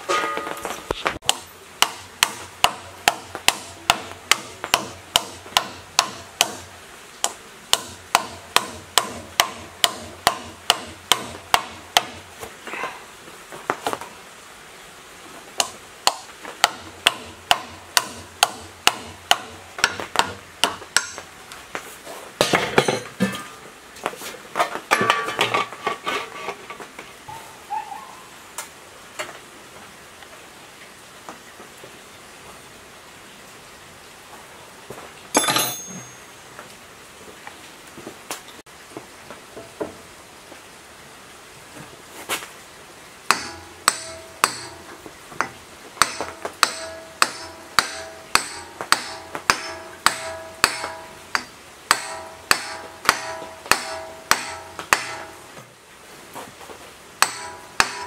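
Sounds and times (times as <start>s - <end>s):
hammer tapping on metal: 1.2s - 12.2s, 15.6s - 21.2s, 43.3s - 44.8s, 45.4s - 55.4s, 57.2s - 58.0s.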